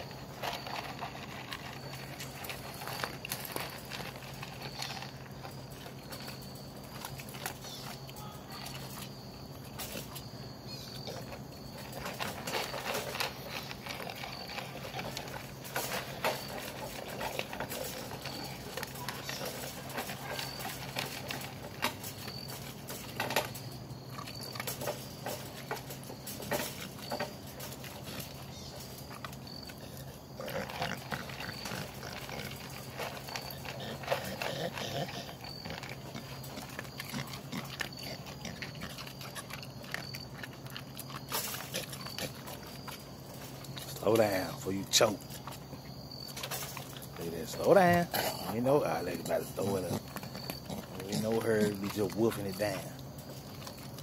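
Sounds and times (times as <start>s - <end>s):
dog crunching kibble: 0.0s - 54.0s.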